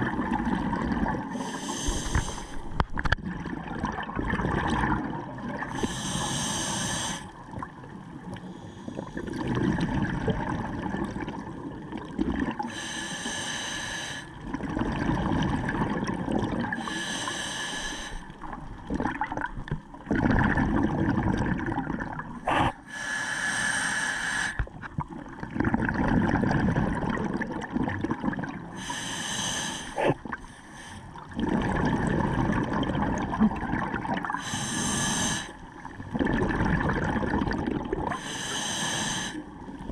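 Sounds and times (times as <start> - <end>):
bubbling exhaled air: 0.0 - 7.4, 14.4 - 39.9
hissing inhale through regulator: 1.3 - 2.8, 5.7 - 7.4, 12.6 - 14.4, 16.8 - 18.4, 22.4 - 24.7, 28.8 - 31.2, 34.3 - 35.7, 38.1 - 39.6.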